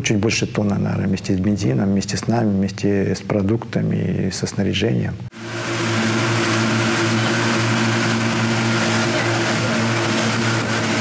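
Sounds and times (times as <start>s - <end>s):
outboard motors droning: 5.3s - 11.0s
churned water rushing: 5.4s - 11.0s.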